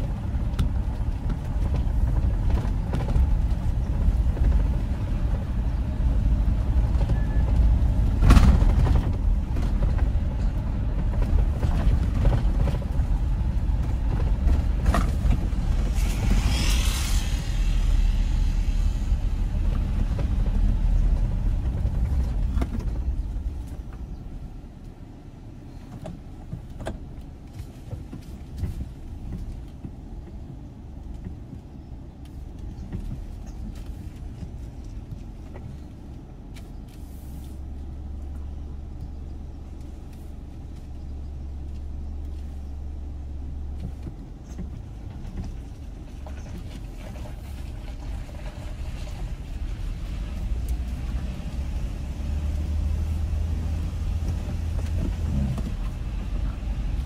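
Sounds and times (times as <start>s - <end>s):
car engine and road rumble: 0.0s - 57.0s
brief hiss: 15.7s - 19.6s.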